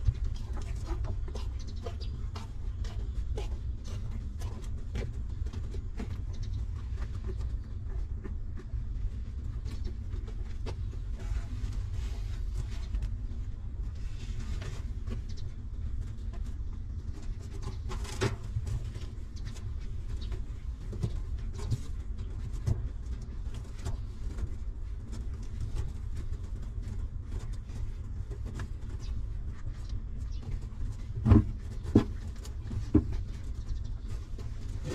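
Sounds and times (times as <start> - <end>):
puppies suckling clicks and smacks: 0.0 - 11.1.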